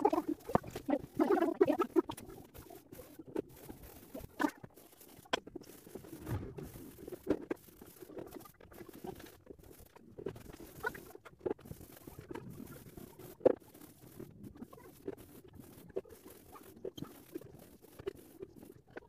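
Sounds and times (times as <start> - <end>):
brush dabbing paint: 0.0 - 14.3.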